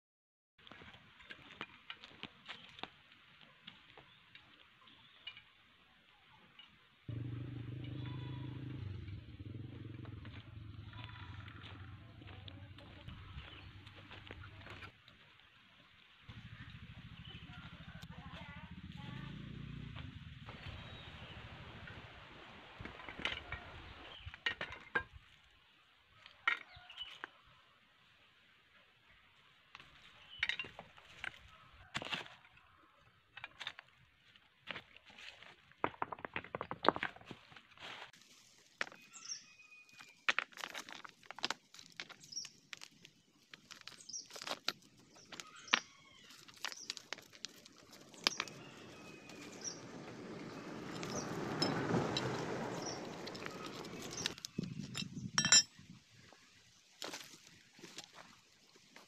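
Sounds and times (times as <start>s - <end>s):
twigs snapping and crackling: 40.2s - 49.5s
bird chirping: 48.0s - 55.5s.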